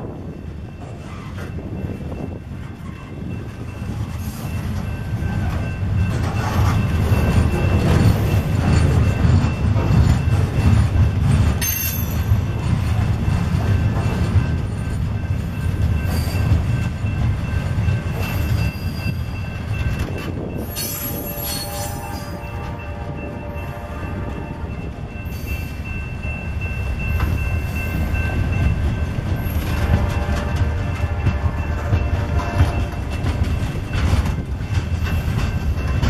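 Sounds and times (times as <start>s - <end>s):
train wheels rumbling on rails: 0.0s - 36.0s
sharp high squeal: 20.6s - 22.6s.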